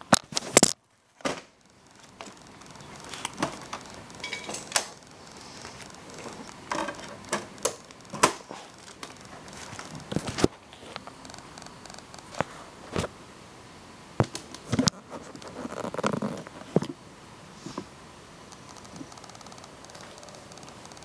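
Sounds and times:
handling clicks and knocks: 0.1 - 5.1, 6.0 - 12.4.

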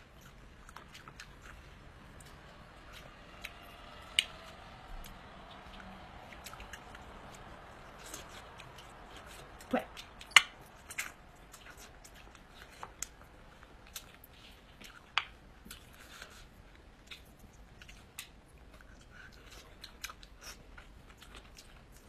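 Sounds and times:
person chewing with wet mouth clicks: 7.8 - 16.4, 17.0 - 22.0.

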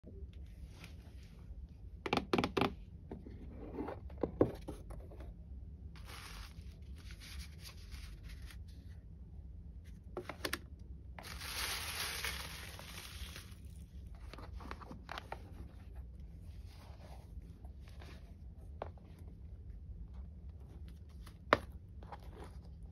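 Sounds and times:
tissue paper rustling: 6.0 - 9.0, 11.2 - 15.2.

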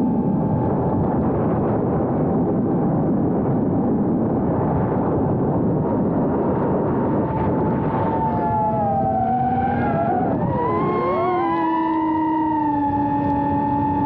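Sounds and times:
drone motors whining: 6.2 - 14.0.

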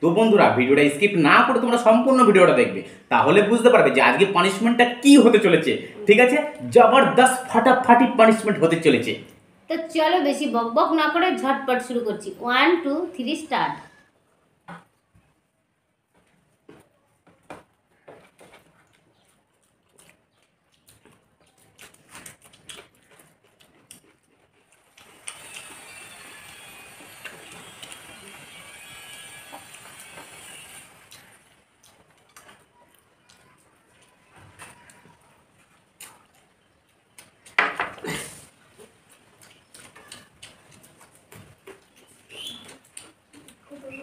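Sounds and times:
people eating by hand: 13.9 - 44.0
mouths chewing: 16.1 - 44.0.

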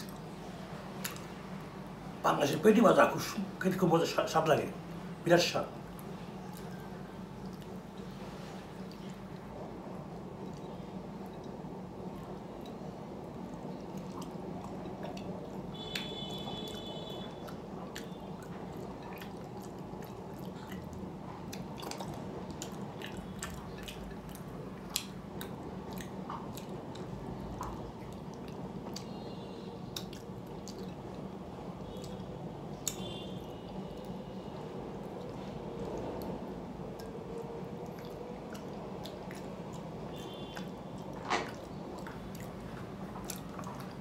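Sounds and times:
chewing and wet mouth sounds: 0.0 - 3.3, 4.2 - 44.0
low background hum: 0.0 - 44.0.

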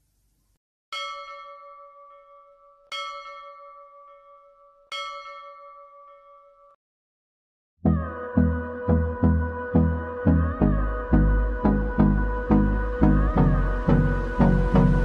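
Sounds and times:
bell chime ringing: 0.9 - 6.8.

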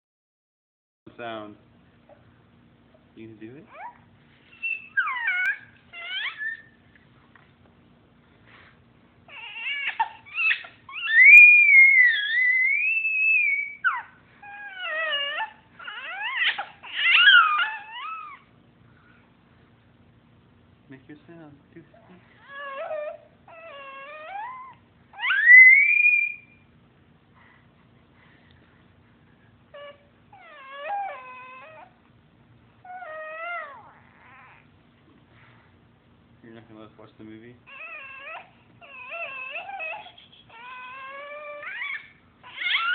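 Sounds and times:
baby squealing: 3.7 - 6.8, 9.3 - 18.5, 22.4 - 26.6, 29.8 - 32.0, 37.7 - 42.9.

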